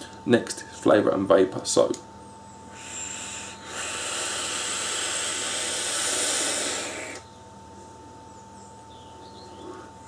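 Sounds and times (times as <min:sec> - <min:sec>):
air hissing through atomizer: 0:02.7 - 0:07.2.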